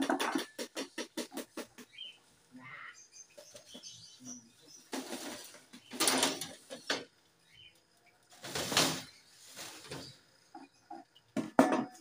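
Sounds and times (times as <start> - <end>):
rustling and handling noises: 8.3 - 10.3.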